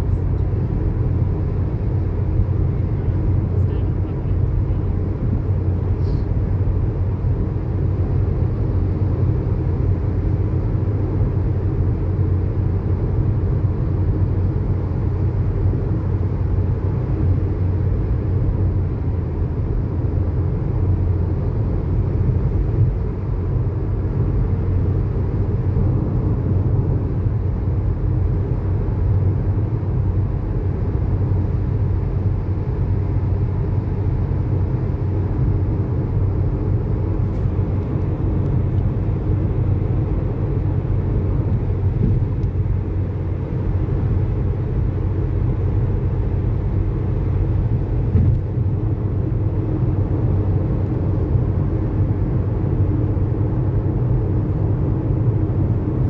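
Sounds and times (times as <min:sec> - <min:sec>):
car engine: 0:00.0 - 0:56.0
tyre noise on road: 0:37.2 - 0:48.8.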